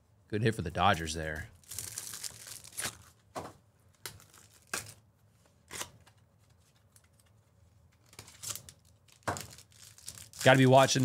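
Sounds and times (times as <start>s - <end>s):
packaging crinkling and tearing: 1.6s - 3.2s, 4.0s - 5.0s, 7.9s - 11.0s.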